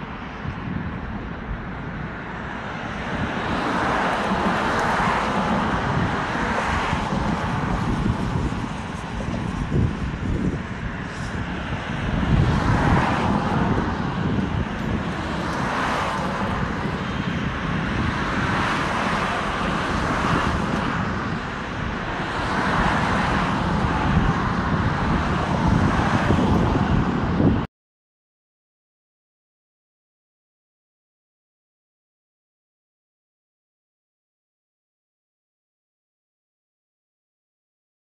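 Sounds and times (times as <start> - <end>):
cars passing close by: 0.1 - 27.7.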